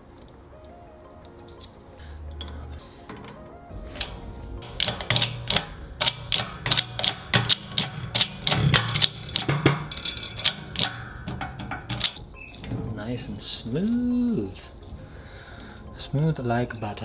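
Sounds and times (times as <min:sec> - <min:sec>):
low bass line: 0:03.5 - 0:07.5
music with percussive clicking beat: 0:03.9 - 0:12.4.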